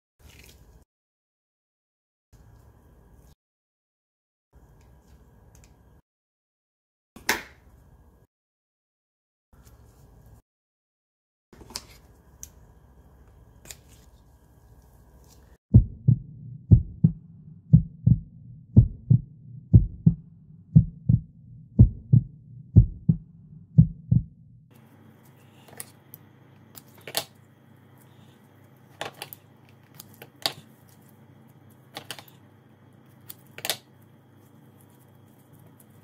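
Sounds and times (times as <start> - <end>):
low double thump: 15.8 - 24.4.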